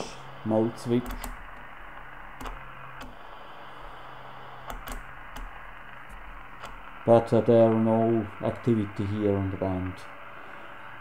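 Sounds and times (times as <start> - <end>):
radio receiver hiss: 0.0 - 11.0
rotary switch clicking: 1.0 - 1.6, 2.4 - 3.1, 4.7 - 5.5.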